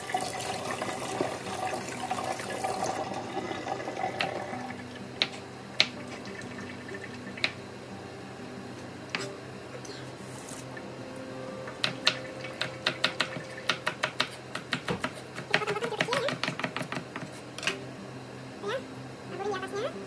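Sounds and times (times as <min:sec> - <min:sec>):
tap water running: 0:00.0 - 0:05.0.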